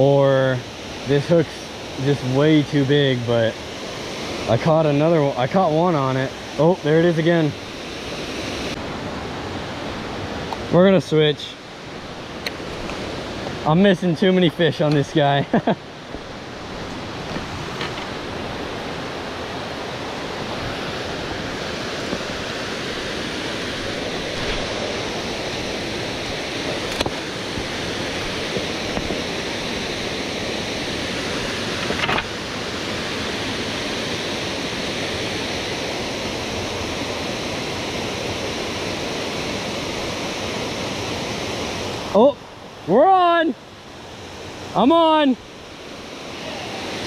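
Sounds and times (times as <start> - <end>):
waterfall rushing: 0.0 - 47.0.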